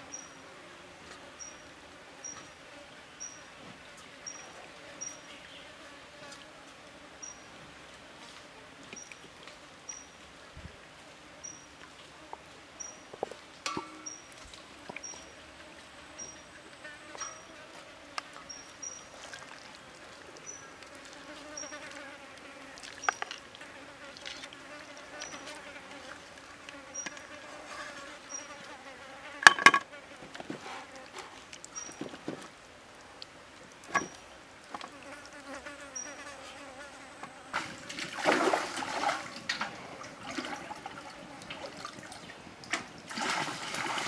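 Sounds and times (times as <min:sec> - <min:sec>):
faint steady buzz: 0:00.0 - 0:43.1
plate and bowl knocks: 0:29.4 - 0:29.9.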